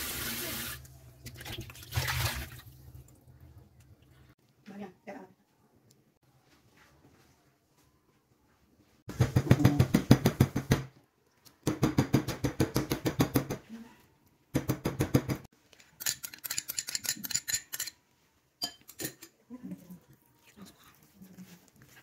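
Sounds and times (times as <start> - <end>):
meat pounding on plastic board: 14.6 - 15.5.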